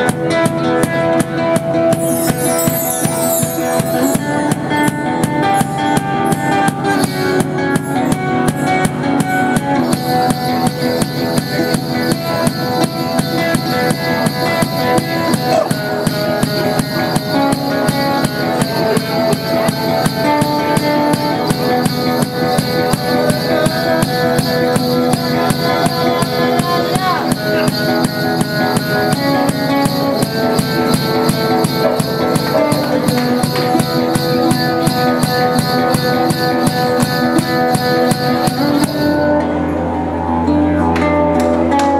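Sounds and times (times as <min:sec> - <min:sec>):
quick steady drum beat: 0:00.0 - 0:39.2
acoustic guitar notes: 0:00.0 - 0:41.9
didgeridoo drone: 0:00.0 - 0:41.9
high hissing shimmer: 0:02.0 - 0:04.3.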